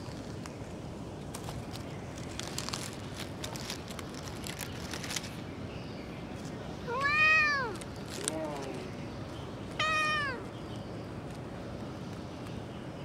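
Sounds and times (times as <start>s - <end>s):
cat meowing: 6.9s - 7.8s, 9.8s - 10.4s.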